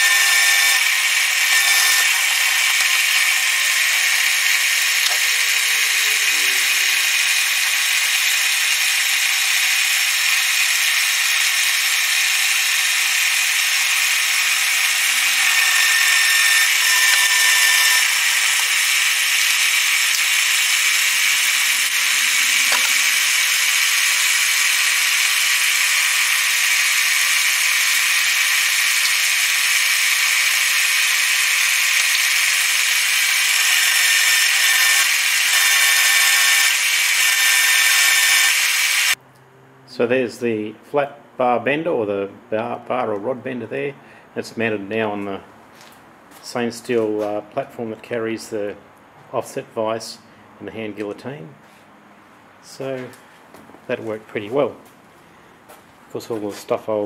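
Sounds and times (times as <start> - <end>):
drill press whining through steel: 0.0 - 39.2.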